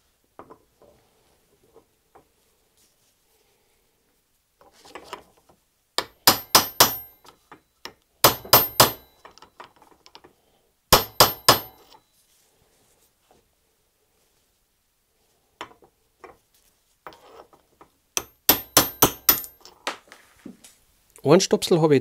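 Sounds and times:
faint handling: 0.0s - 5.6s
hammer striking metal: 6.0s - 7.3s, 8.2s - 9.4s, 10.9s - 12.0s, 18.2s - 19.7s.

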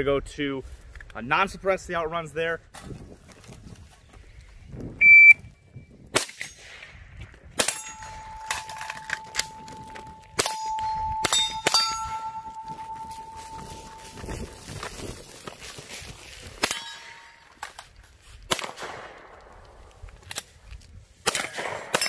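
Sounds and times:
shot timer beep: 5.0s - 5.4s
rifle shots: 6.1s - 7.0s, 7.6s - 13.0s, 18.5s - 19.8s, 21.2s - 22.0s
steel targets ringing: 7.6s - 14.6s, 16.6s - 17.5s.

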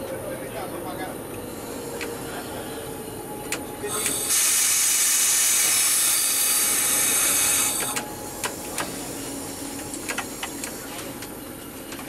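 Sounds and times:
compressed air hissing: 1.5s - 11.2s
sharp clicks: 9.8s - 11.3s.

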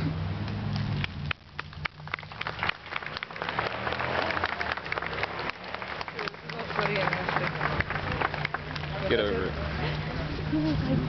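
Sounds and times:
crowd applause: 1.6s - 9.9s.

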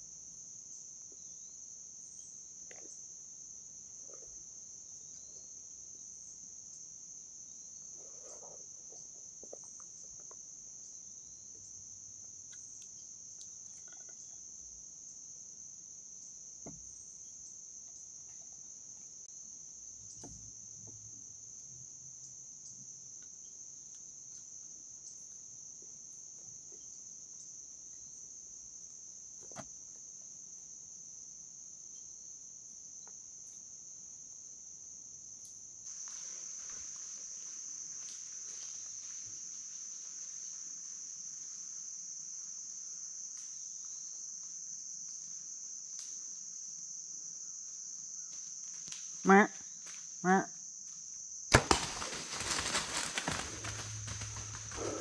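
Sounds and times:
insects chorus: 0.0s - 55.0s.

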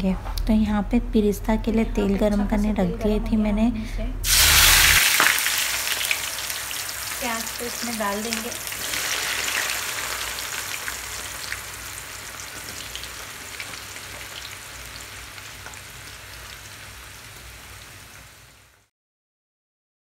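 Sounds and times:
onions sizzling in hot oil: 4.2s - 18.9s.

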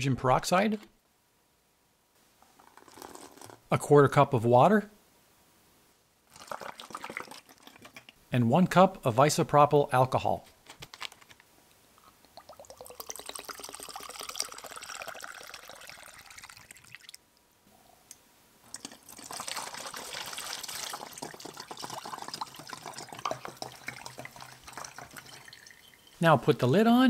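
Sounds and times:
liquid pouring into cup: 2.6s - 3.6s, 6.3s - 8.2s, 12.2s - 17.2s, 18.7s - 26.2s
liquid pouring through funnel: 2.6s - 3.6s, 6.3s - 8.2s, 12.2s - 17.2s, 18.7s - 26.6s.

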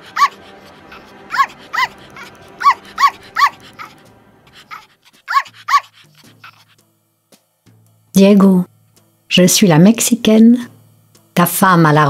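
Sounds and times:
small dog yapping: 0.0s - 4.0s, 4.6s - 6.7s
soft background music: 0.0s - 12.0s.

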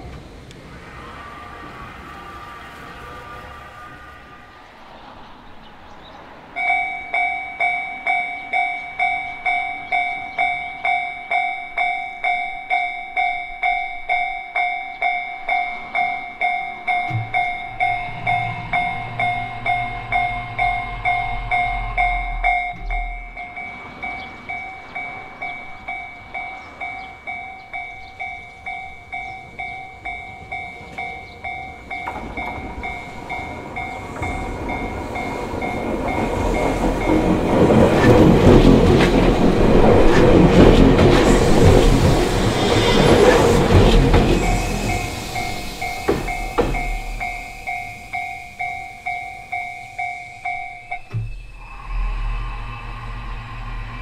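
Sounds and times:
train rumbling: 0.0s - 54.0s
level-crossing alarm bell ringing: 6.5s - 40.6s, 41.6s - 53.8s
low hum: 17.0s - 25.0s, 43.2s - 54.0s.

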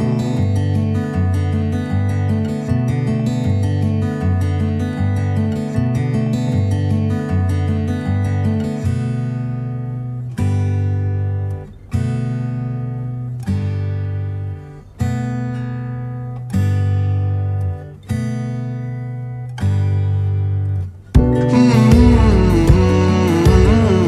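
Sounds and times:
acoustic guitar strumming chords: 0.0s - 24.0s.

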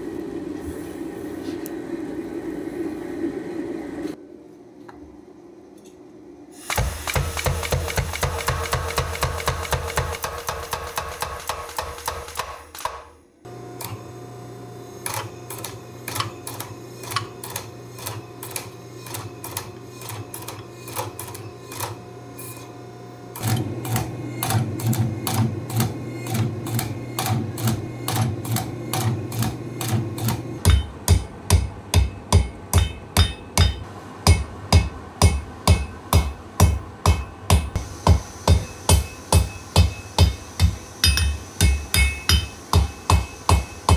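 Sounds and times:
power hammer striking: 6.7s - 13.2s, 15.0s - 22.0s, 23.4s - 43.9s
hammer blows ringing on anvil: 26.2s - 43.9s.

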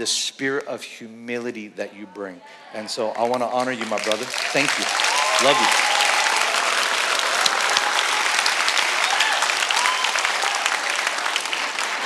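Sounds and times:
congregation applauding: 2.8s - 12.0s.

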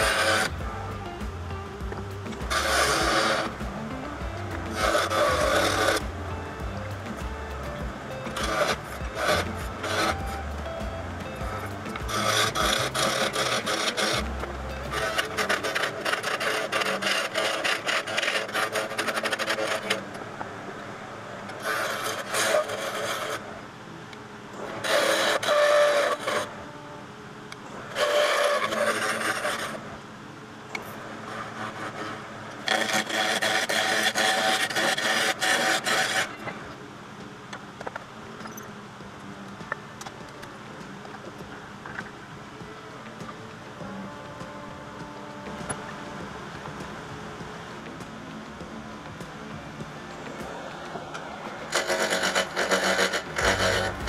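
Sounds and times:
turning tool scraping wood: 0.0s - 20.0s, 21.5s - 23.5s, 24.7s - 26.5s, 27.9s - 29.9s, 31.3s - 36.6s, 50.2s - 54.0s
wood lathe running: 0.0s - 20.2s, 21.5s - 23.6s, 24.6s - 26.8s, 27.8s - 30.0s, 31.1s - 36.8s, 41.4s - 54.0s.

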